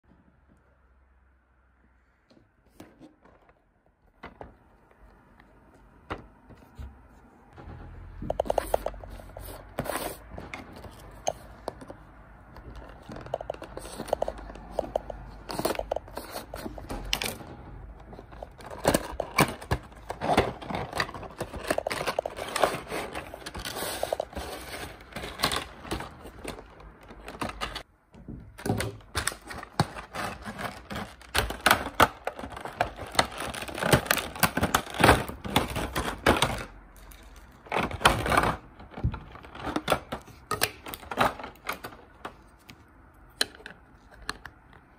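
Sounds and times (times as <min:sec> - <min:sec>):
plastic packaging rustling: 0:08.3 - 0:27.9, 0:28.6 - 0:42.6.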